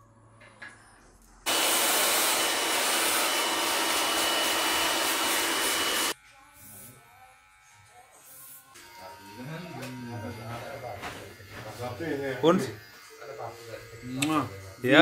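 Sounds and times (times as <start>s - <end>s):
hair dryer blowing: 1.5s - 6.2s.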